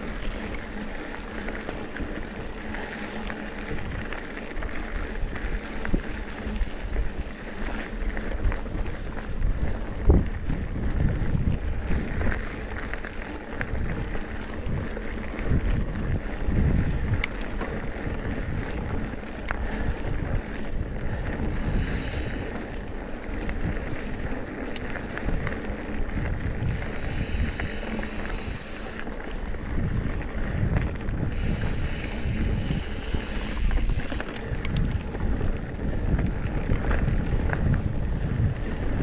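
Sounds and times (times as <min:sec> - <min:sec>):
bike tyres on dirt: 0:00.0 - 0:39.0
wind buffeting microphone: 0:00.0 - 0:39.0.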